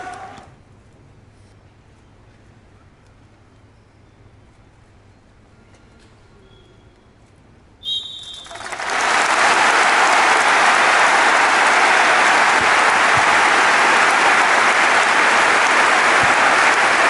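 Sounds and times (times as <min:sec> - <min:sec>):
arena crowd applause: 0:00.0 - 0:00.5, 0:08.0 - 0:17.0.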